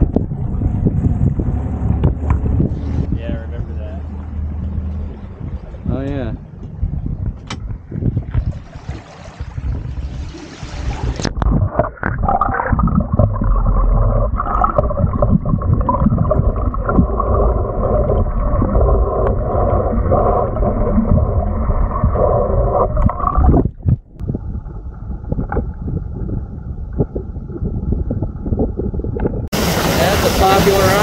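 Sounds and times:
wind noise on microphone: 0.0 - 31.0
muffled underwater gurgling: 10.9 - 31.0.

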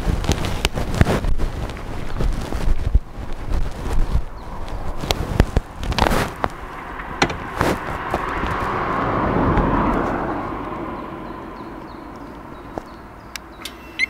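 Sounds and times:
exhaust pops: 0.0 - 13.8
motorcycle engine: 4.4 - 14.0.

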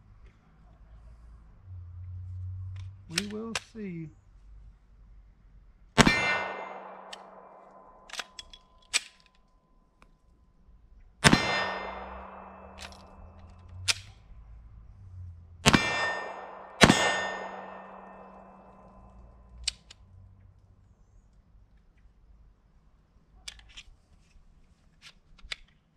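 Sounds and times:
light clicks: 2.7 - 3.8
pistol gunshots: 6.0 - 9.0, 11.2 - 14.1, 15.6 - 19.0
metallic ring: 15.7 - 19.2.

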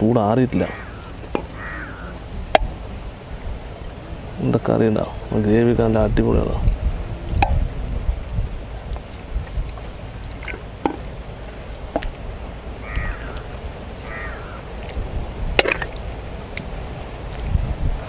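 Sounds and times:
wind rumble on microphone: 0.0 - 18.0
crow cawing: 0.6 - 2.3, 12.8 - 14.7.

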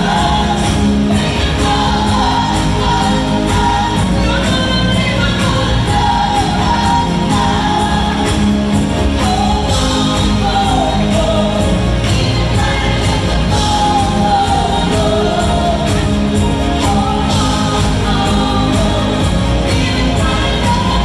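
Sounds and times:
live pop band playing: 0.0 - 21.0
woman and man singing: 0.0 - 21.0.

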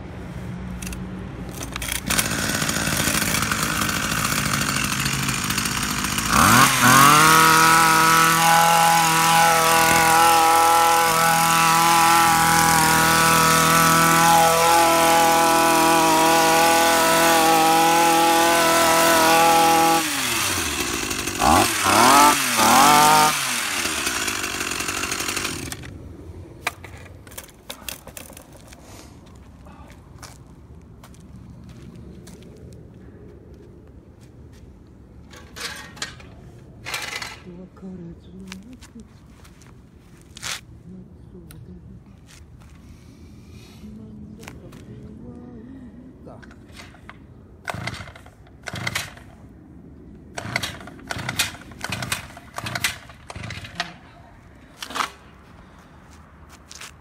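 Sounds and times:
hedge trimmer engine revving: 1.7 - 25.9, 36.9 - 37.5, 47.6 - 49.4, 50.3 - 55.2
recoil starter pull: 46.7 - 49.3, 50.4 - 54.0.

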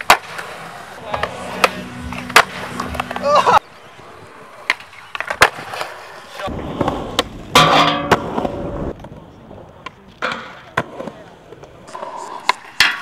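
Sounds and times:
skateboard tail pops and landings: 0.0 - 0.5, 1.2 - 3.3, 4.6 - 11.2
skateboard wheels rolling on concrete: 0.0 - 13.0.

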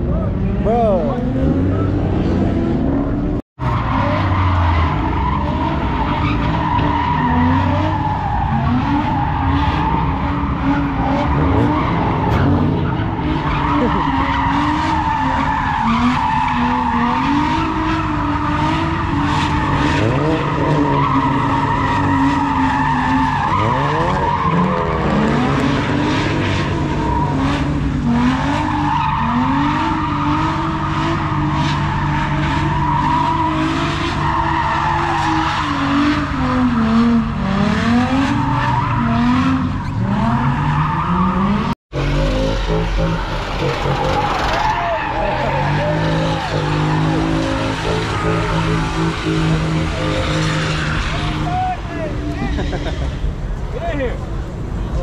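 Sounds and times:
car engine revving: 0.0 - 55.0
tyres screeching: 37.8 - 54.2.

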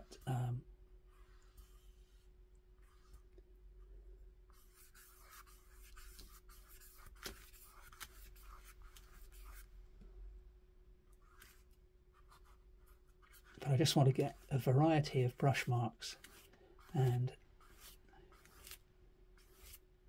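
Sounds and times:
faint steady hum: 0.0 - 20.0
paintbrush swishing on paper: 4.5 - 9.7, 11.2 - 18.8, 19.4 - 19.8.

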